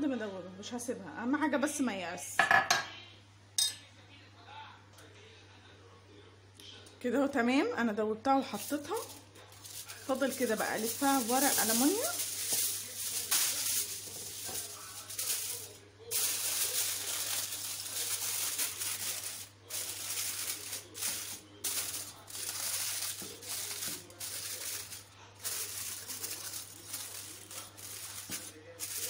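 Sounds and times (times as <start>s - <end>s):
aluminium foil crinkling: 8.4s - 29.0s.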